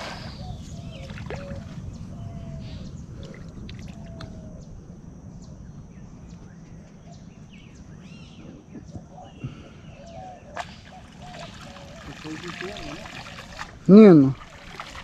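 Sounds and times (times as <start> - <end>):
faint water sounds: 0.0 - 4.8, 8.4 - 15.0.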